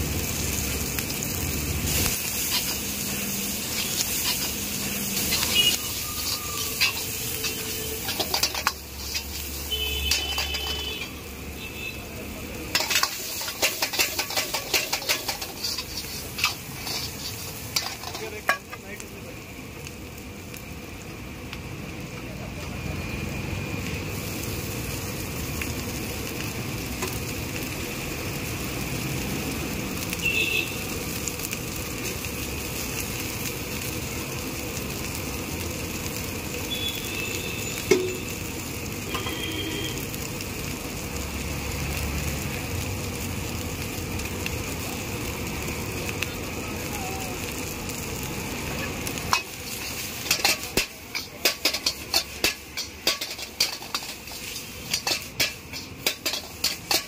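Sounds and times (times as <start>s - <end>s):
food sizzling in a wok: 0.0s - 57.0s
metal ladle striking a wok: 6.8s - 9.4s, 10.1s - 10.9s, 12.7s - 18.8s, 37.9s - 38.2s, 50.2s - 57.0s.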